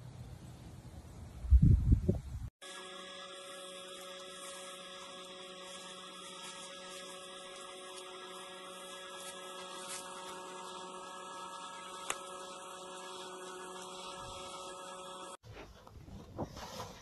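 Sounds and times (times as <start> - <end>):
electrical hum with hiss and tones: 2.6 - 15.4.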